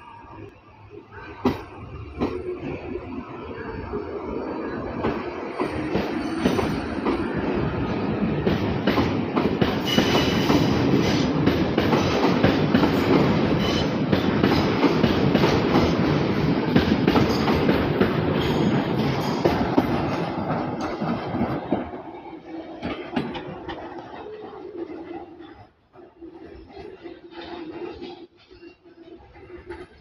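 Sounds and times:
train wheel squeal: 0:00.0 - 0:07.4, 0:09.7 - 0:11.4, 0:12.0 - 0:14.7, 0:18.3 - 0:20.3, 0:24.2 - 0:30.0
train wheels rolling and clicking: 0:01.2 - 0:30.0.

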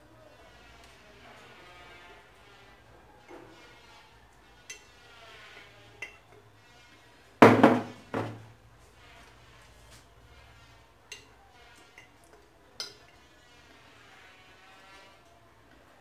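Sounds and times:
spoon scraping in a glass jar: 0:03.4 - 0:07.0, 0:09.0 - 0:15.2.

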